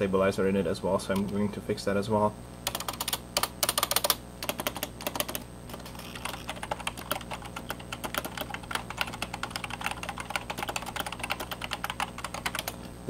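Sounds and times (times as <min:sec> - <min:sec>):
keyboard keys clacking: 0:02.7 - 0:12.8.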